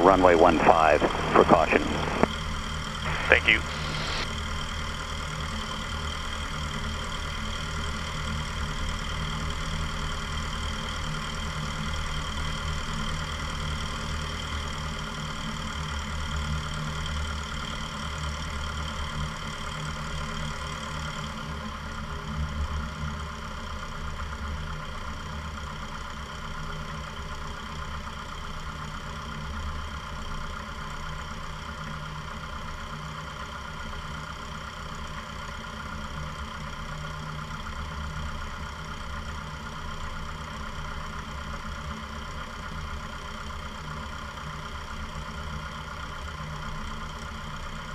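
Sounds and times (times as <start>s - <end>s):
propeller plane engine droning: 0.0s - 13.6s.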